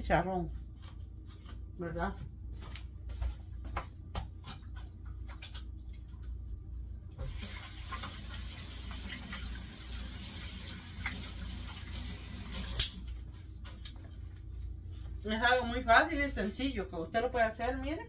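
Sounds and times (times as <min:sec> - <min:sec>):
faucet water running: 0:07.2 - 0:13.2.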